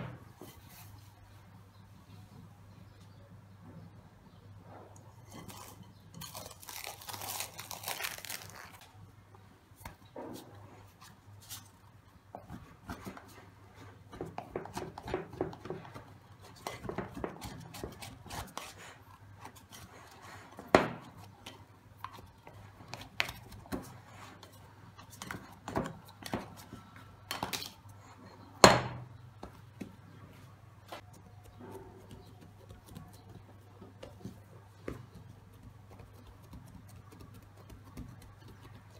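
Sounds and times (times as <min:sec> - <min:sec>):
cling film peeled crinkly rustle: 0:05.4 - 0:09.0.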